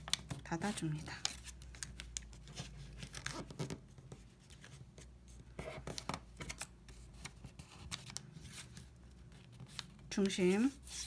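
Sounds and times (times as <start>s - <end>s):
paper rustling and crinkling: 0.0s - 11.0s.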